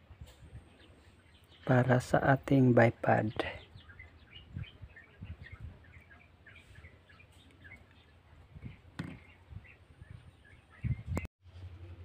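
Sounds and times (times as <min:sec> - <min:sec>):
birds chirping: 0:00.0 - 0:12.0
soft handling thumps: 0:08.6 - 0:09.4.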